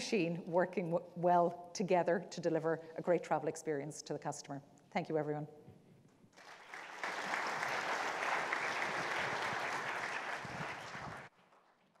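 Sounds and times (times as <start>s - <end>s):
audience applauding: 6.4s - 11.8s.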